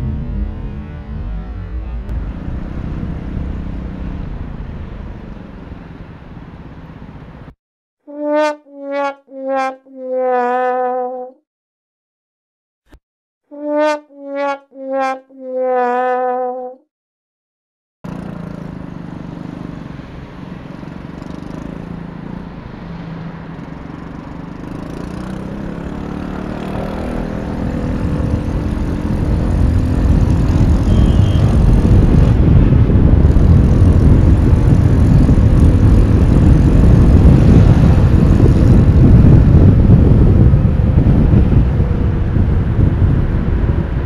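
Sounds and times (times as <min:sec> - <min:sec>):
scooter engine accelerating: 0:00.0 - 0:05.5, 0:18.1 - 0:43.2
wind rushing over microphone: 0:02.1 - 0:07.2, 0:24.0 - 0:44.0.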